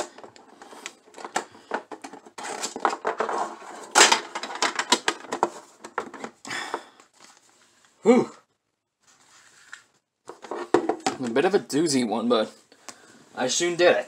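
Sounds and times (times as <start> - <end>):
hands tapping and scraping packaging: 0.0 - 7.4.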